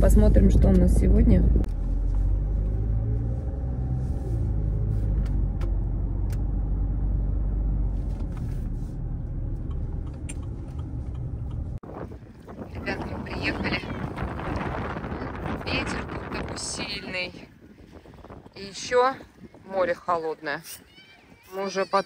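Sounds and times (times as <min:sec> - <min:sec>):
car engine and road drone: 0:00.0 - 0:16.9.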